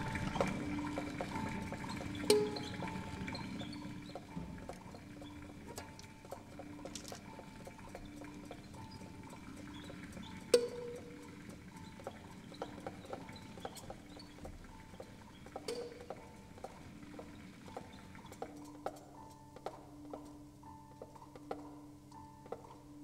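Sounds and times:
small clicks and taps: 4.1 - 22.9.

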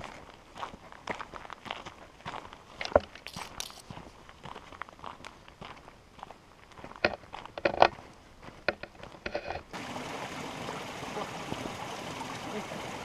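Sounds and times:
footsteps crunching on dirt: 0.0 - 9.3
creek rushing: 9.7 - 13.0.

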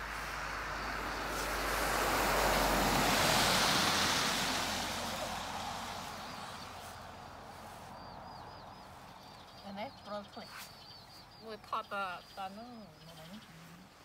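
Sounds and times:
vehicle passing on wet road: 0.0 - 10.3.

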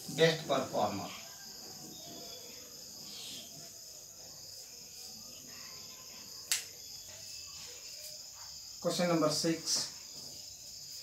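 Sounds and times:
crickets chirring: 0.0 - 11.0
sharp click: 6.5 - 6.7.

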